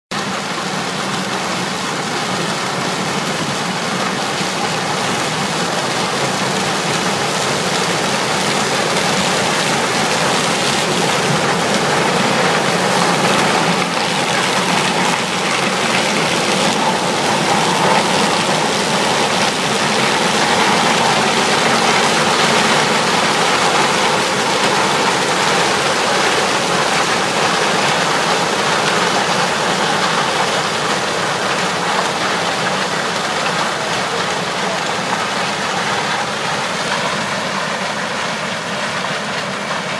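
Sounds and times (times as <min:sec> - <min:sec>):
combine harvester machinery rushing: 0:00.2 - 0:39.9.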